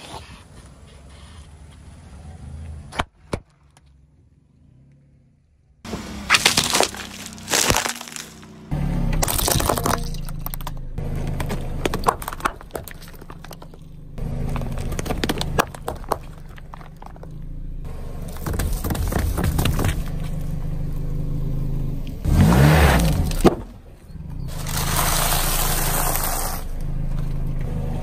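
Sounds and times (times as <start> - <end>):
car engine humming: 3.8 - 28.0
tyre crushing food and packaging: 5.9 - 8.5, 9.2 - 10.8, 11.4 - 17.4, 18.3 - 20.3.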